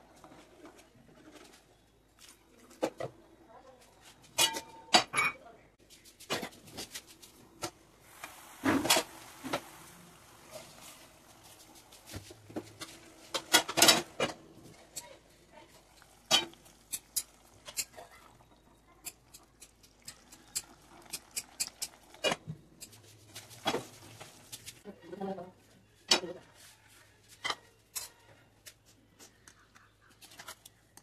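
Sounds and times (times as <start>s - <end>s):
cookware clicking and knocking: 4.4s - 5.4s, 12.7s - 15.3s, 16.0s - 23.0s.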